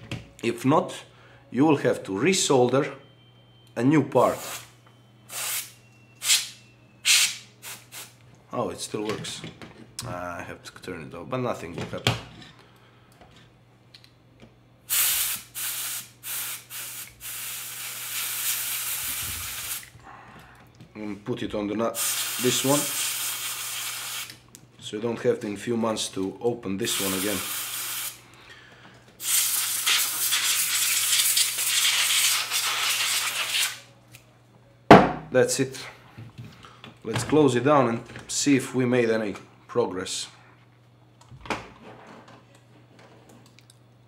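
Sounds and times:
aerosol spray can blasts: 0:04.4 - 0:04.7, 0:05.3 - 0:08.2, 0:14.9 - 0:19.9, 0:22.0 - 0:24.3, 0:29.2 - 0:33.8
compressed air hissing: 0:05.3 - 0:08.2, 0:14.9 - 0:19.9, 0:22.0 - 0:24.3, 0:26.9 - 0:28.2, 0:29.2 - 0:33.8.

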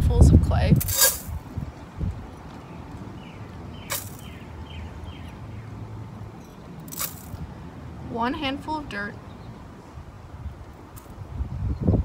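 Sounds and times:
cat litter hitting steel pot: 0:03.9 - 0:04.2.

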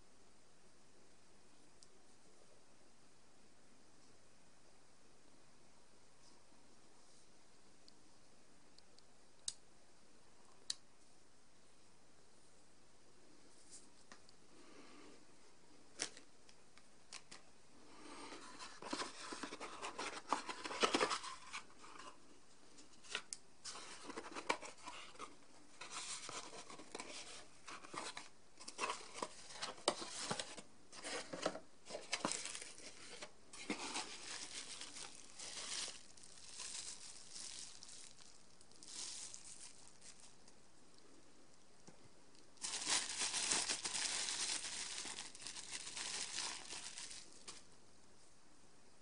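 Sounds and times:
packaging rustling and crinkling: 0:18.3 - 0:22.2, 0:23.0 - 0:40.5, 0:42.6 - 0:47.7.

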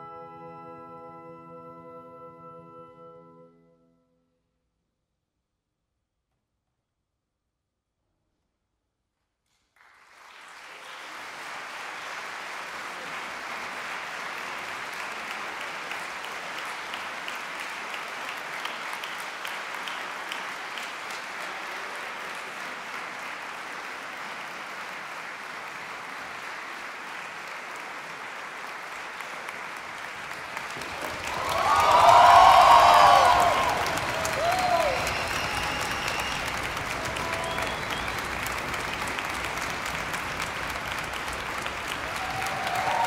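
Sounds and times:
audience applauding: 0:09.8 - 0:43.0.

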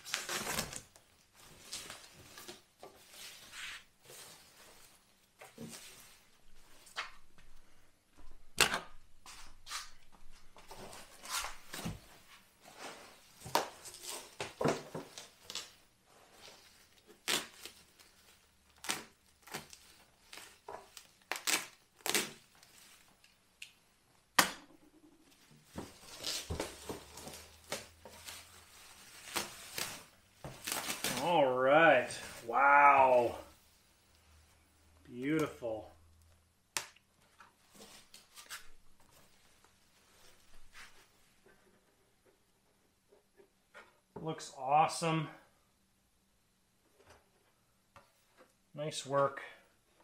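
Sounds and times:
tape tearing: 0:00.0 - 0:01.0, 0:16.5 - 0:23.8, 0:25.7 - 0:33.2
bubble wrap crinkling: 0:00.0 - 0:07.4, 0:10.7 - 0:24.0, 0:25.0 - 0:35.0
sharp plastic crackles: 0:16.8 - 0:31.4.

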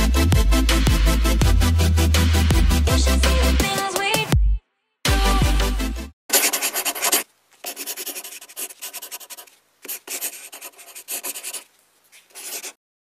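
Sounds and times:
pen scratching across paper: 0:06.3 - 0:12.8.

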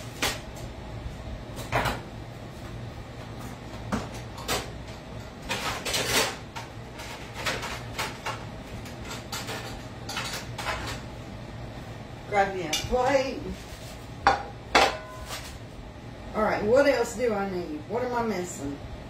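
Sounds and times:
knocks and clunks in kitchen: 0:00.0 - 0:11.2, 0:14.2 - 0:15.5.

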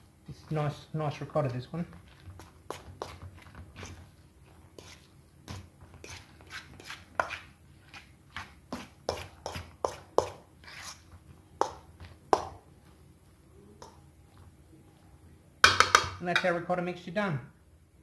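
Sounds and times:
fork scraping metal bowl: 0:04.8 - 0:08.1, 0:10.6 - 0:11.2.

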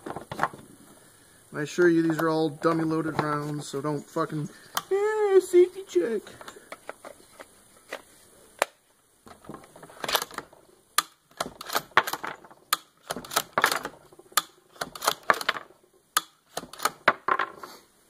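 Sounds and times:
rounds dropping onto wooden bench: 0:00.0 - 0:00.8, 0:02.0 - 0:04.9, 0:06.3 - 0:17.8
rifle bolt clicking and clacking: 0:10.0 - 0:10.4, 0:11.0 - 0:15.6, 0:16.2 - 0:17.2.

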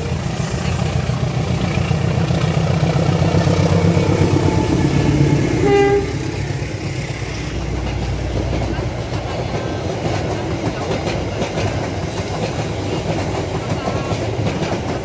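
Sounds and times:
locomotive engine rumble: 0:00.0 - 0:15.0
train coaches rolling on rails: 0:00.0 - 0:15.0
train horn toot: 0:05.2 - 0:06.5.

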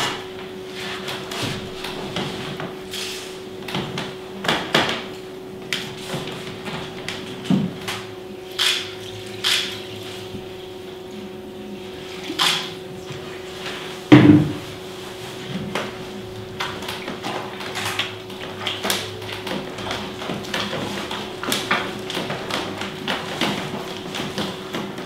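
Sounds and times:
steady low hum: 0:00.0 - 0:22.4
heavy thud: 0:14.1 - 0:14.6.

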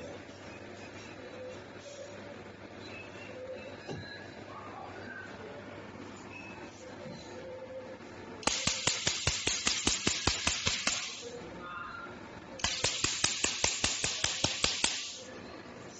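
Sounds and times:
laser pulses snapping: 0:08.4 - 0:11.3, 0:12.6 - 0:15.2.

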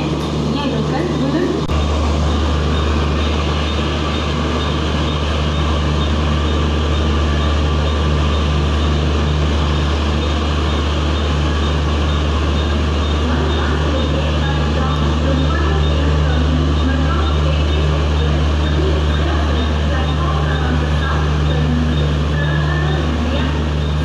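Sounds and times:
deep hum of train machinery: 0:00.0 - 0:24.0.

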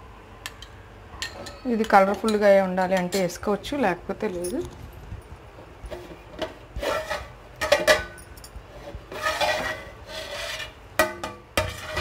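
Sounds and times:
metal lid scraping pot rim: 0:06.8 - 0:08.0, 0:08.8 - 0:10.8, 0:11.6 - 0:12.0.

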